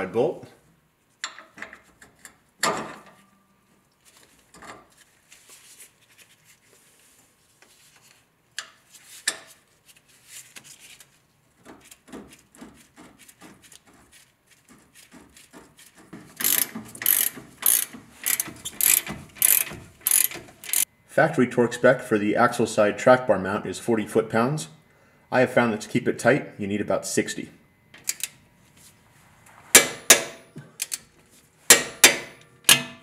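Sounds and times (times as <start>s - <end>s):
hand ratchet clicking: 16.4s - 20.9s.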